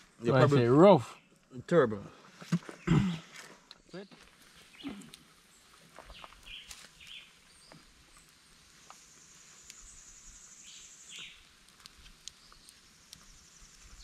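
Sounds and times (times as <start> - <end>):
bird chirps: 2.6 - 11.5.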